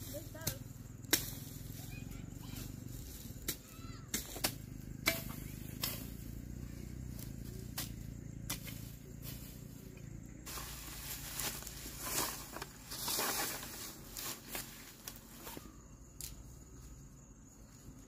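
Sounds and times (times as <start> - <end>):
raking dry grass and straw: 0.0 - 18.0.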